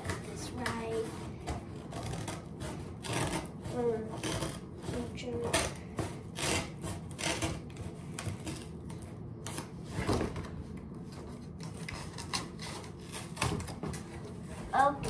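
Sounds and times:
scissors cutting cardboard: 0:00.0 - 0:15.0.

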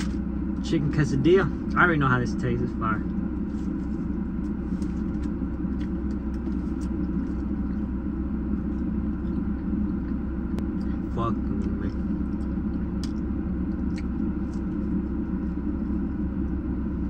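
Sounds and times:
car engine idling: 0:00.0 - 0:17.0
person chewing food: 0:03.0 - 0:16.6.

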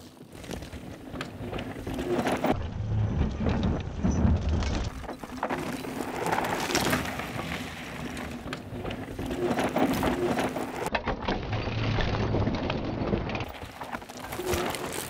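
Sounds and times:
bike clicks and knocks: 0:00.0 - 0:02.6
bike tyres skidding on dirt: 0:00.0 - 0:10.9, 0:13.5 - 0:15.0.

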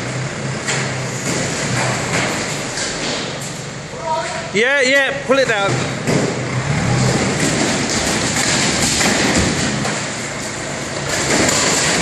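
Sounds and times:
diesel engine running: 0:00.0 - 0:12.0
structure crunching and scraping: 0:06.0 - 0:12.0.

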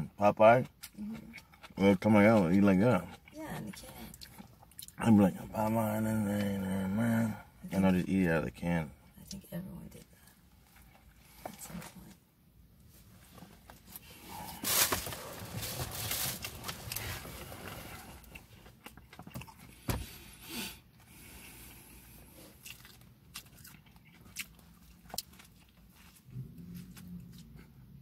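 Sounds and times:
person chewing soft bread: 0:00.6 - 0:05.1, 0:16.6 - 0:28.0.

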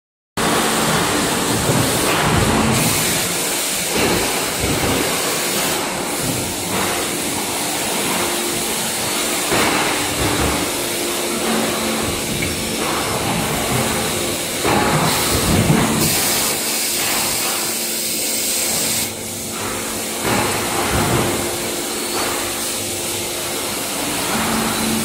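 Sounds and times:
production line machinery humming: 0:00.4 - 0:25.0.

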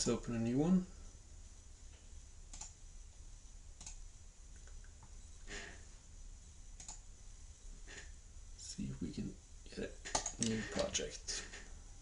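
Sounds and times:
steady low hum: 0:00.0 - 0:12.0
computer mouse clicks: 0:02.5 - 0:02.8, 0:03.8 - 0:04.0, 0:04.6 - 0:05.2, 0:06.8 - 0:07.0, 0:10.1 - 0:10.9.

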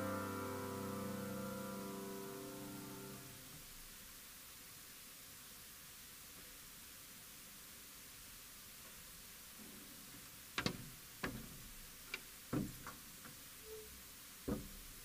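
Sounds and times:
faint steady hiss: 0:00.0 - 0:15.0
knocks on wooden pews: 0:10.6 - 0:11.7, 0:12.5 - 0:13.4, 0:14.4 - 0:15.0.

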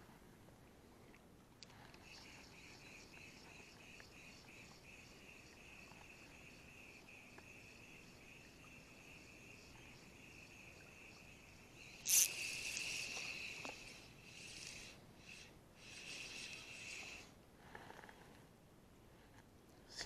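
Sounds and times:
fishing line hissing off reel: 0:02.0 - 0:17.3
insect chirring: 0:02.0 - 0:17.3
reel being worked: 0:11.8 - 0:17.2.

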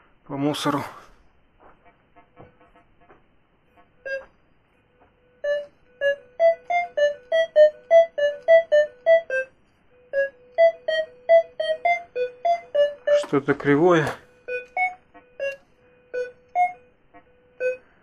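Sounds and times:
metal detector beeps: 0:04.0 - 0:04.3, 0:10.1 - 0:17.8.

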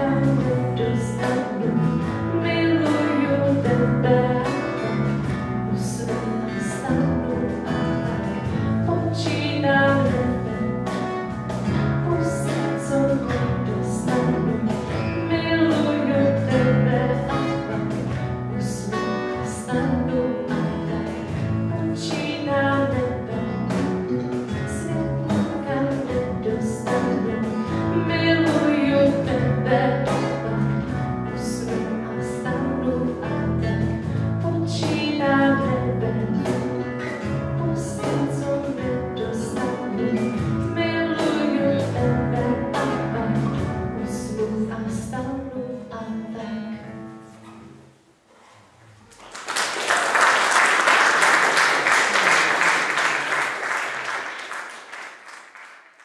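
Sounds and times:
woman singing with band: 0:00.0 - 0:46.8
audience applauding: 0:49.1 - 0:56.0.

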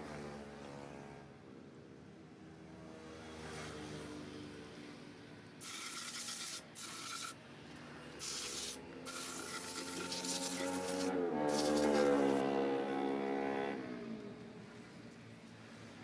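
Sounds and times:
compressed air hissing blasts: 0:05.6 - 0:07.4, 0:08.2 - 0:12.4.

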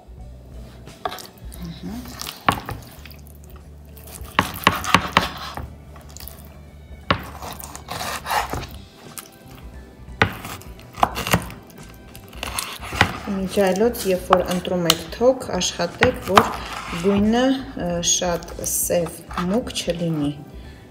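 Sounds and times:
knife knocking on cutting board: 0:07.1 - 0:07.4, 0:10.2 - 0:11.6.

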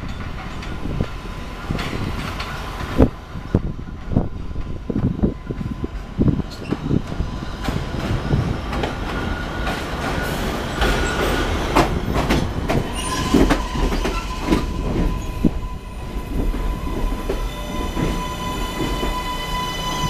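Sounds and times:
train wheels clicking over rail joints: 0:04.0 - 0:15.6.

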